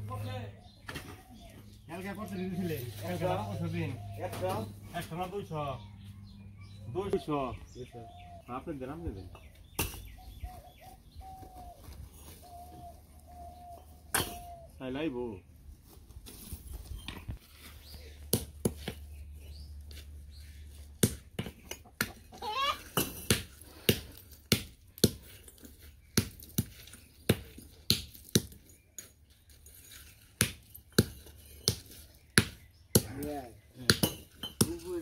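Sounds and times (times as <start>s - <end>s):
hammer striking bricks: 30.4s - 33.2s, 33.8s - 35.0s.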